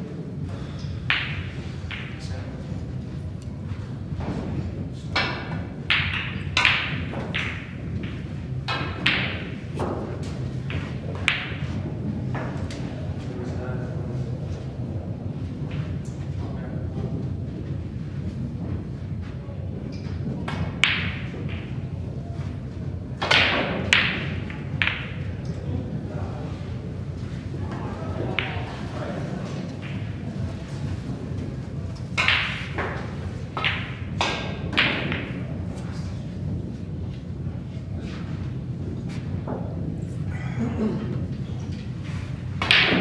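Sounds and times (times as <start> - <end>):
snooker balls clicking: 1.1 - 2.2, 5.1 - 12.8, 19.9 - 21.8, 23.2 - 25.6, 27.6 - 35.7, 42.6 - 43.0
cue striking ball: 5.1 - 12.6, 20.5 - 21.7, 23.2 - 25.2, 32.1 - 35.6, 42.6 - 43.0.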